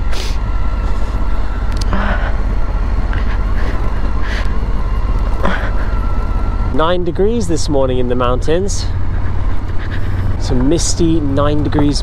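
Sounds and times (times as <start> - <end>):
tyres rumbling on gravel: 2.1 - 12.0.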